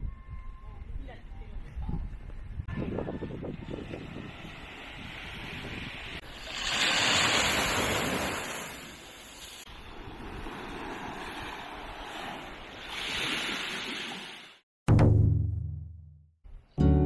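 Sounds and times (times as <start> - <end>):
wind buffeting microphone: 0.0 - 6.3
small waves breaking on sand: 3.7 - 14.6.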